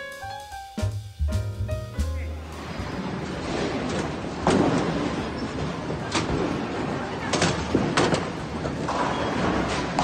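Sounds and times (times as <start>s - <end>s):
bowling balls rumbling on lanes: 2.6s - 10.0s.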